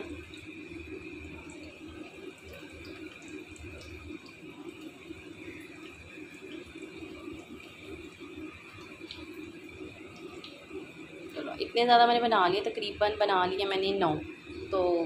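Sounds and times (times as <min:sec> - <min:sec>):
bubbling oil crackle: 0:00.0 - 0:15.0
nuggets sizzling in a frying pan: 0:00.0 - 0:15.0.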